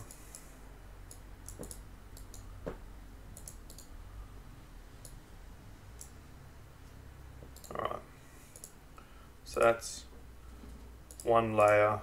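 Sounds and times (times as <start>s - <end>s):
low steady hum: 0.0s - 12.0s
computer mouse clicking: 1.1s - 3.9s, 5.0s - 5.2s, 6.0s - 6.2s, 7.5s - 7.9s, 8.5s - 8.8s, 11.0s - 11.9s.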